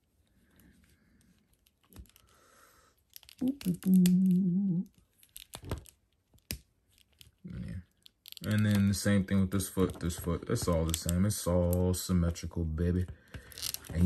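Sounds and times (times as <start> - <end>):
person humming: 3.4 - 5.0
plastic action figure joints clicking: 7.9 - 9.0, 10.6 - 11.8.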